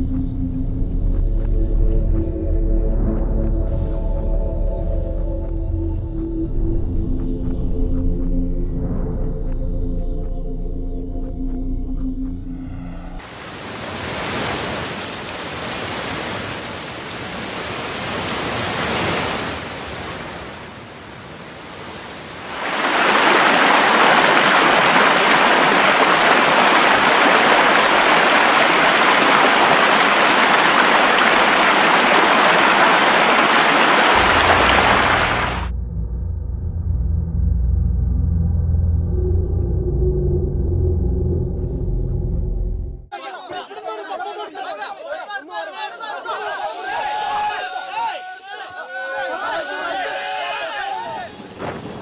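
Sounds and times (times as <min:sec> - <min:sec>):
low rumble: 0:00.0 - 0:13.2, 0:34.2 - 0:43.1
heavy rain hissing: 0:13.2 - 0:35.7, 0:46.4 - 0:52.0
water rushing through spillway gates: 0:13.2 - 0:35.7.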